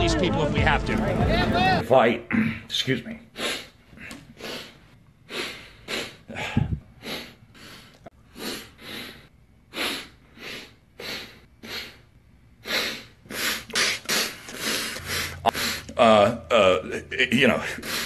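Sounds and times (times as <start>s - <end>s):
man sniffling: 3.4s - 16.0s.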